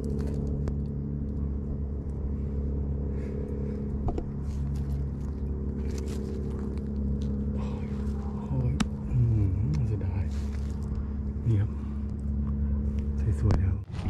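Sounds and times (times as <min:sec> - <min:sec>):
dry leaves rustling: 0:00.0 - 0:01.0, 0:04.3 - 0:12.0
low droning hum: 0:00.0 - 0:14.0.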